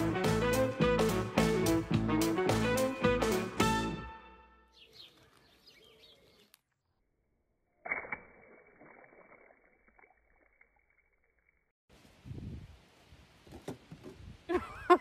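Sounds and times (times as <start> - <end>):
water balloon bursting: 7.8 - 10.8.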